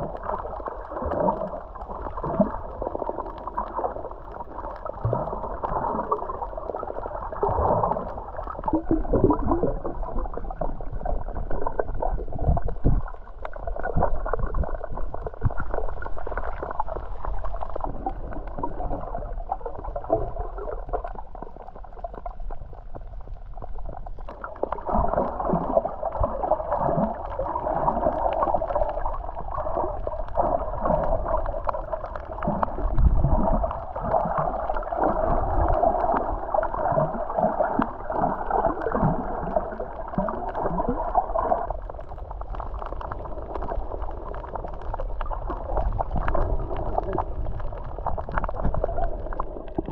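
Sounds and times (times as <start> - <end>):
underwater water sloshing: 0.0 - 49.9.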